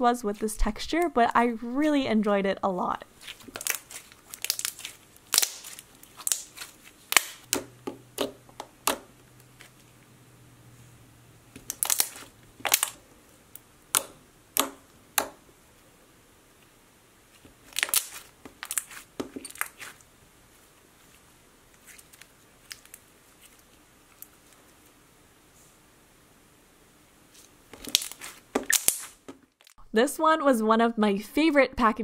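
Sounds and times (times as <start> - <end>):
slime popping and clicking: 3.5 - 9.1, 11.6 - 13.0, 27.8 - 29.2.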